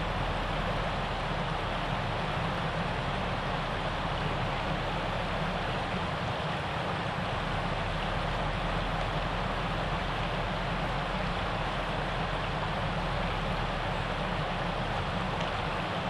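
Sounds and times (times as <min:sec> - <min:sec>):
river water rushing over rocks: 0:00.0 - 0:16.0.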